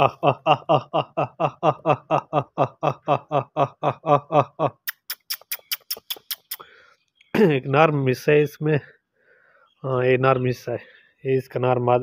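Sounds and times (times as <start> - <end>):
sharp clicks: 4.8 - 7.3.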